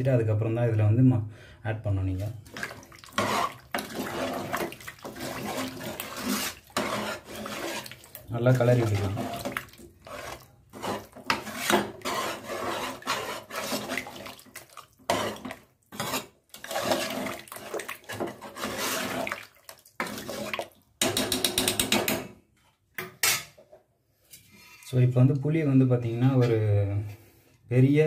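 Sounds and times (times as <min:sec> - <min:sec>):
thick liquid sloshing: 0:02.1 - 0:20.9
ladle scraping metal pot: 0:02.2 - 0:22.1.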